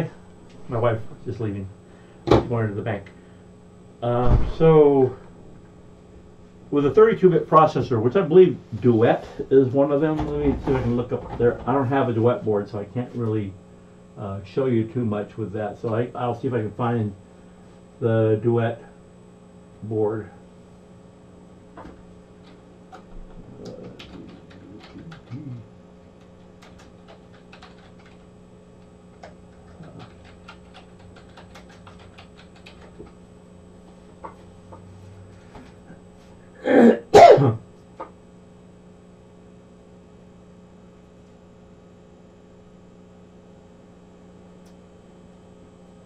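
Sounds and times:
steady electrical hum: 0.0 - 46.0
man clearing throat: 25.3 - 25.7, 36.6 - 37.7
keyboard and mouse clicks: 29.2 - 33.1.

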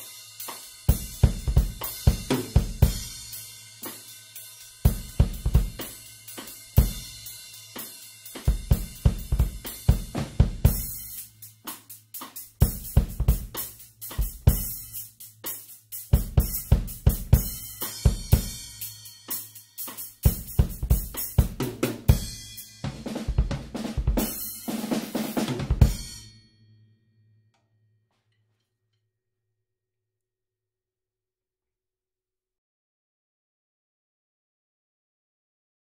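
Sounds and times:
drum kit groove: 0.0 - 26.3
cymbal ringing: 25.8 - 27.8.

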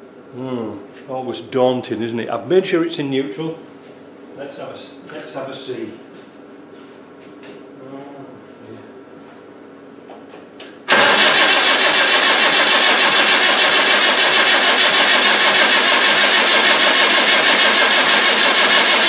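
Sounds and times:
diesel engine running: 10.9 - 19.0
starter motor cranking: 10.9 - 19.0.

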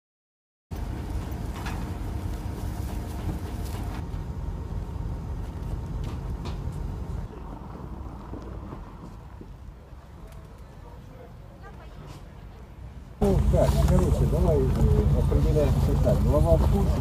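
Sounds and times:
heavy machinery rumbling: 0.7 - 9.6, 13.2 - 17.0.

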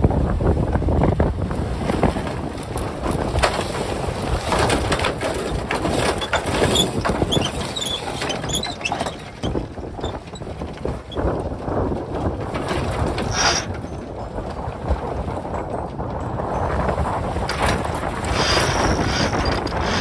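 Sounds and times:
wind rushing on microphone: 0.0 - 20.0
deck gear clicking and knocking: 2.1 - 20.0
short high squeaks: 13.2 - 13.8, 18.3 - 20.0.

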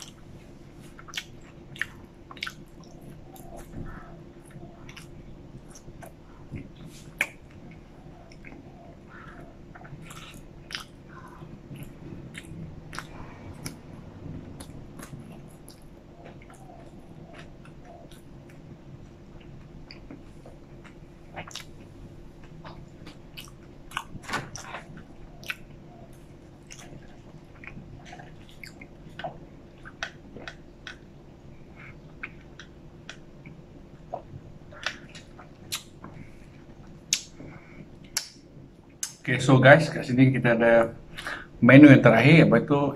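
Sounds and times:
chewing french fries: 0.0 - 39.3
low steady hum: 0.0 - 42.9
wet mouth clicks and smacks: 34.8 - 36.1, 38.0 - 38.4.

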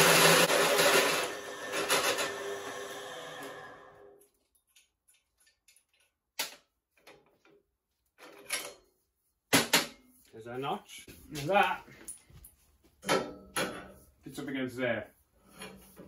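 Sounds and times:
drill cutting tube: 0.0 - 4.1
drill spinning down: 0.0 - 4.2.

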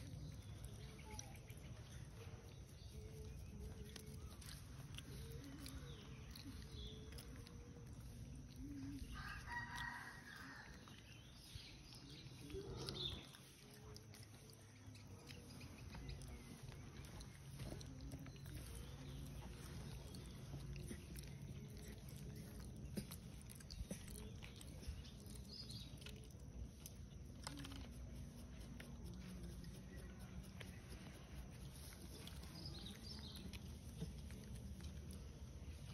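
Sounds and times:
low outdoor hum: 0.0 - 35.9
rooster crowing: 9.1 - 10.9.

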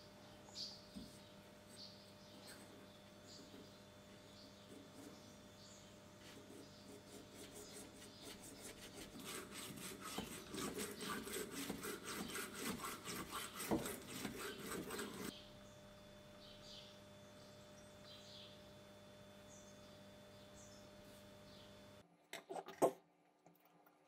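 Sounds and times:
steel wool scraping in metal bores: 9.0 - 15.3.

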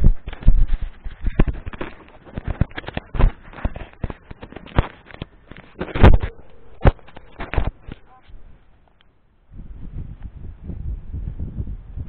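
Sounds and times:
camera handling noise: 0.3 - 9.0.

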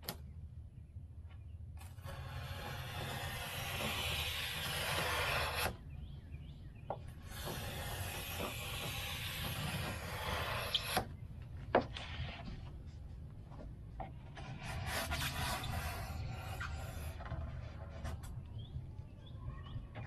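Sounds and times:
knife cutting foam board: 1.8 - 5.8, 7.3 - 11.1.

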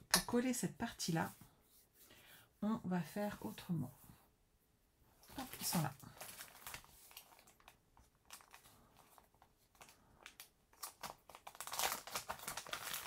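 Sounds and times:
paper and card rustling: 5.3 - 13.0.

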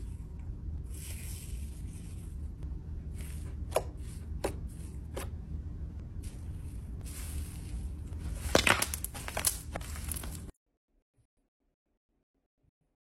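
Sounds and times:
slime crackly rustling: 7.0 - 10.5.

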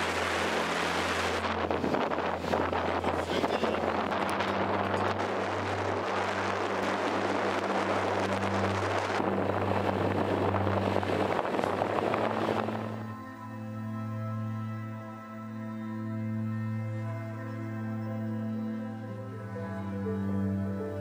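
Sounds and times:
wind and road noise: 0.0 - 13.2
soft music with held notes: 0.0 - 21.0.

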